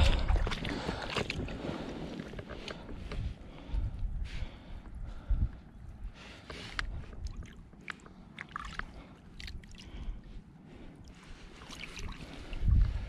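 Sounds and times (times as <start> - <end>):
water sloshing and splashing: 0.0 - 3.3, 6.5 - 13.0
wind rumble on microphone: 0.0 - 7.9, 9.8 - 13.0.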